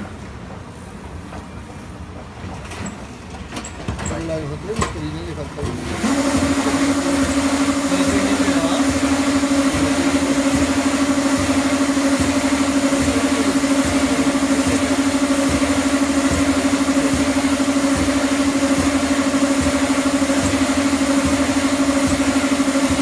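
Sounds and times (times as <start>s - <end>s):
pulsing motor hum: 5.2s - 23.0s.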